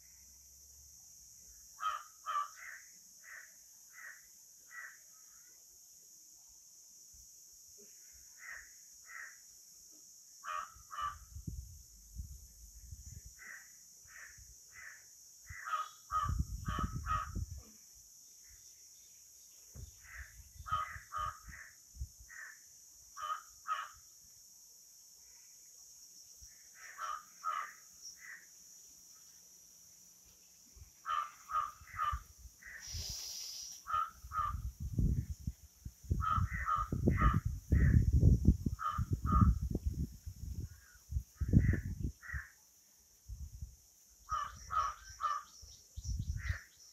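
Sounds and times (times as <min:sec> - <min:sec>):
crows cawing: 0:01.8 - 0:05.0, 0:08.4 - 0:09.4, 0:10.4 - 0:11.2, 0:13.4 - 0:17.4, 0:20.0 - 0:21.7, 0:23.2 - 0:24.0, 0:26.8 - 0:28.5, 0:31.0 - 0:32.9, 0:33.8 - 0:34.6, 0:36.2 - 0:38.0, 0:38.8 - 0:39.5, 0:41.6 - 0:42.6, 0:44.3 - 0:45.5
steady high hiss: 0:17.4 - 0:36.2.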